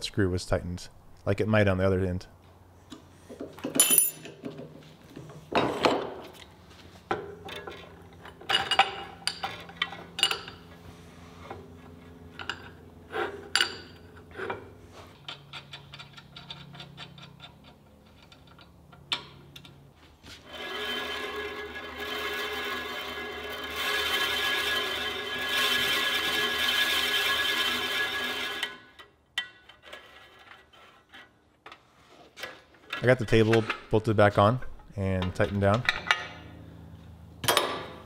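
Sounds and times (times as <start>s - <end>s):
metallic taps and clinks: 3.6s - 4.7s.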